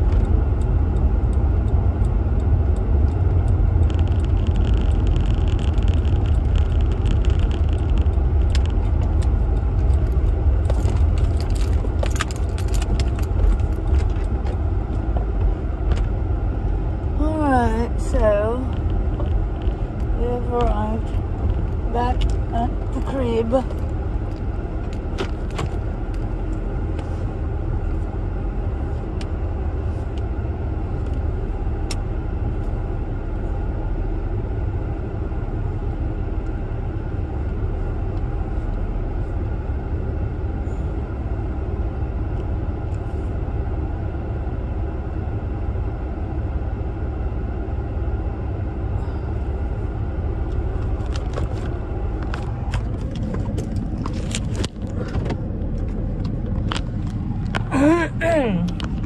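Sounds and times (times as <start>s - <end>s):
car cabin low rumble: 0.0s - 59.0s
faint clicks and rustles: 3.0s - 16.3s, 18.0s - 30.3s, 50.4s - 57.8s.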